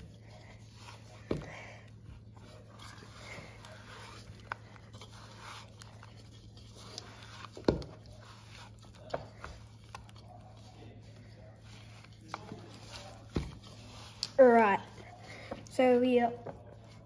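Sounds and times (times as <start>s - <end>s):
hands kneading dough: 0.0s - 17.0s
steady low hum: 0.0s - 17.0s.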